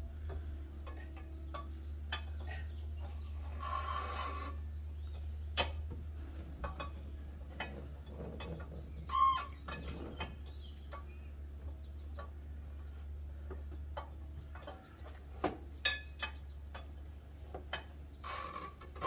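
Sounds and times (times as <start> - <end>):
steady low hum: 0.0 - 19.0
rasping scrape: 3.1 - 4.6.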